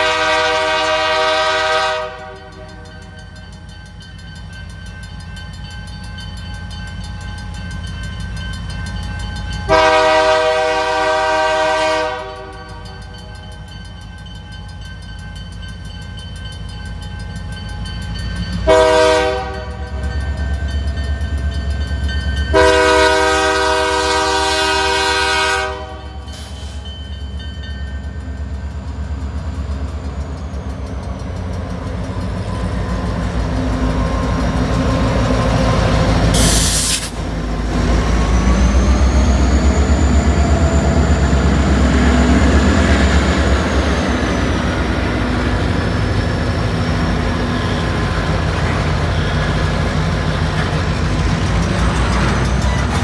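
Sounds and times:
locomotive chime horn blasts: 0:00.0 - 0:03.5, 0:09.4 - 0:13.8, 0:18.4 - 0:28.1.

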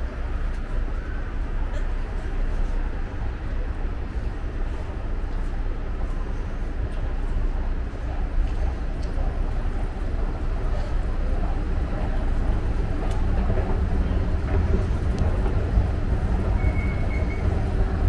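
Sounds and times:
escalator rumble and hum: 0:00.0 - 0:18.0
faint clicks: 0:13.0 - 0:13.7.

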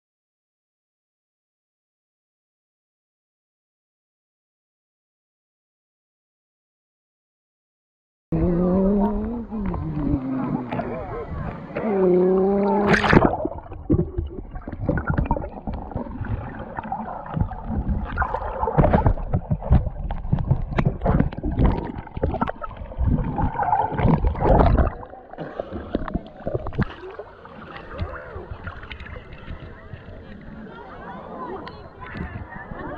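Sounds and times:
water sloshing and splashing: 0:09.2 - 0:30.7.

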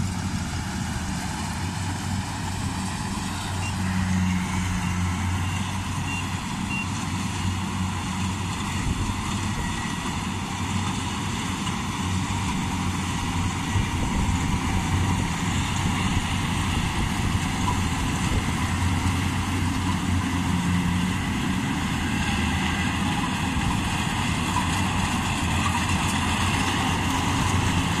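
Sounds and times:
combine harvester engine hum: 0:00.0 - 0:28.0
threshing machinery noise: 0:00.0 - 0:28.0.

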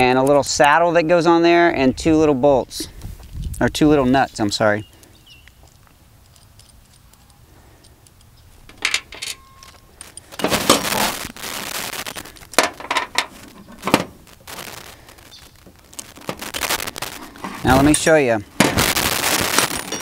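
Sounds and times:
metal parts clinking: 0:06.2 - 0:10.7, 0:19.5 - 0:20.0
metal scraping rattle: 0:12.6 - 0:14.2, 0:17.2 - 0:18.9, 0:19.5 - 0:20.0.

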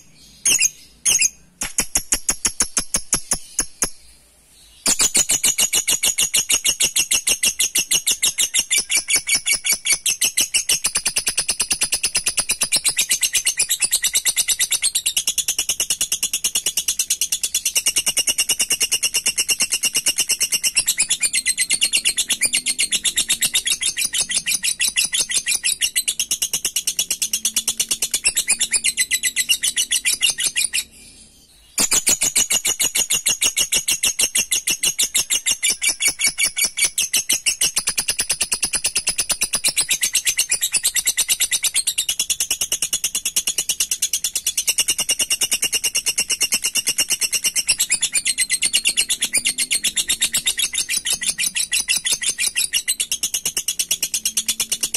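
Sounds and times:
lovebird shrill chatter: 0:00.3 - 0:04.0, 0:04.8 - 0:15.1, 0:31.8 - 0:42.4.

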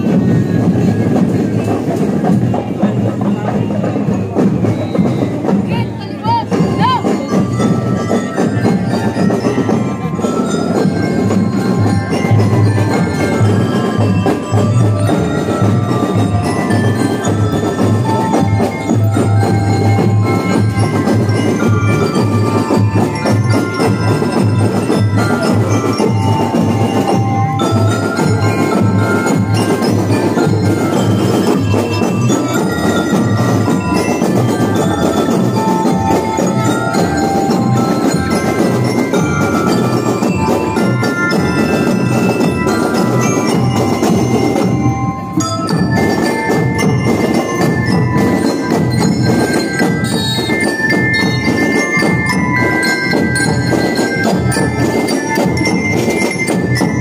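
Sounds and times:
bell lyres playing a tune: 0:00.0 - 0:57.0
steady drum beat: 0:00.0 - 0:57.0.

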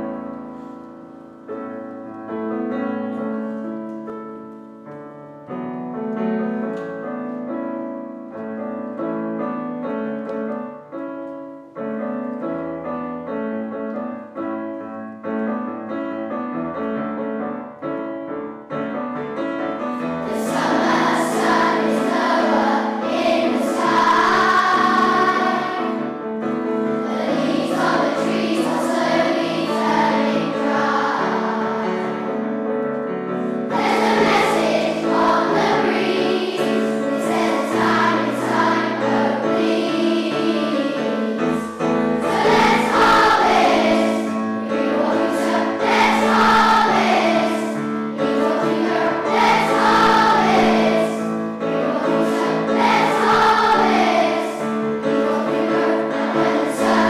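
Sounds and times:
piano playing: 0:00.0 - 0:57.0
children's choir singing: 0:19.8 - 0:57.0.

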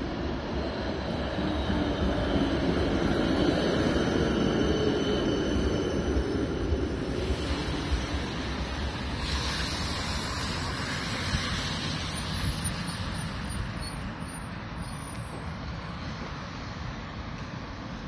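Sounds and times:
tyres hissing on wet road: 0:07.0 - 0:18.0.

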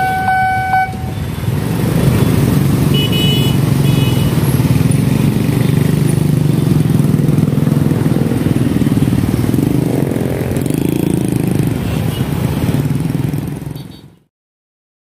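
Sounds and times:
motorbikes revving: 0:00.0 - 0:14.0
scooter and motorcycle traffic: 0:00.0 - 0:14.3.

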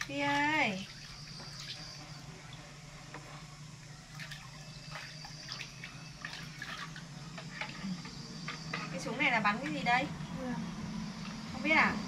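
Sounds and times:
water splashing in plastic basin: 0:00.0 - 0:02.0, 0:04.1 - 0:07.8.

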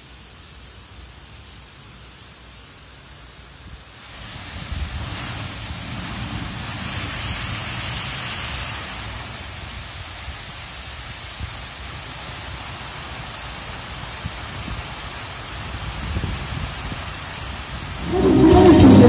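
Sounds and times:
white water rushing down a weir: 0:04.0 - 0:19.0.

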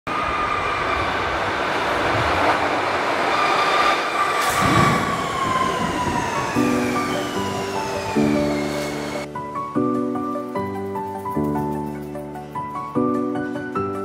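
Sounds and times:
metro train wheels rumbling: 0:00.1 - 0:09.3
train whine falling in pitch: 0:00.1 - 0:09.3
music: 0:06.4 - 0:14.0.

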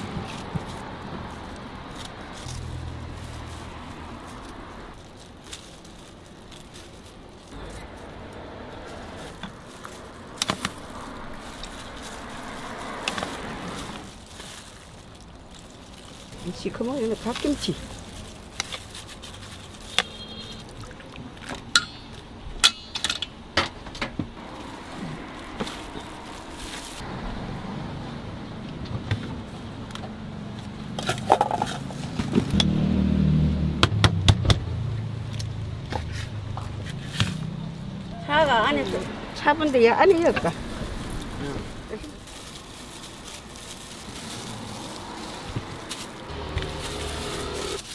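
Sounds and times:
car engine humming: 0:00.0 - 0:47.9.

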